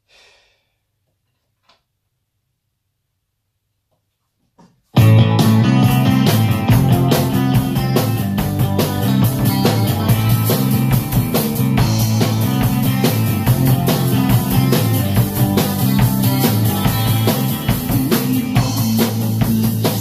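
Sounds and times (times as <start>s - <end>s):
drum kit playing a rock beat: 5.0s - 20.0s
rock song: 5.0s - 20.0s.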